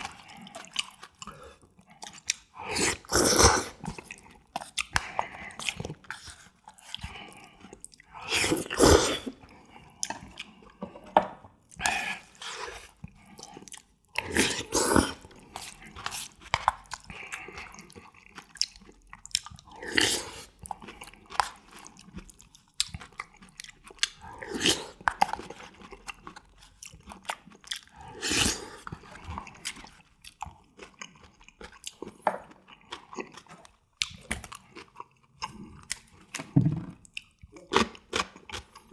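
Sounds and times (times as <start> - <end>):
wet chewing: 0.0 - 10.8, 11.6 - 38.9
slurping noodles: 2.5 - 4.2, 5.0 - 10.6, 14.2 - 16.4, 19.7 - 20.6, 27.9 - 29.8.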